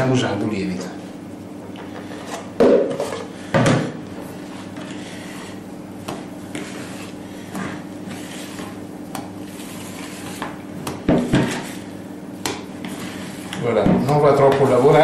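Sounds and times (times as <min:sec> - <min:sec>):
utensil scraping mixing bowl: 0:04.2 - 0:15.0.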